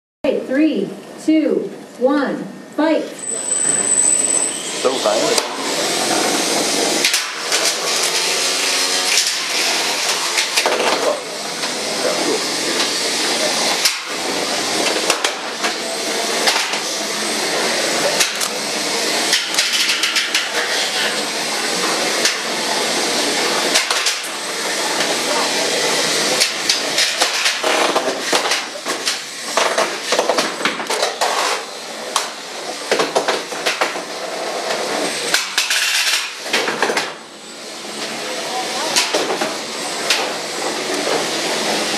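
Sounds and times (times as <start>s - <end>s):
small electric motors whirring: 3.2s - 41.9s.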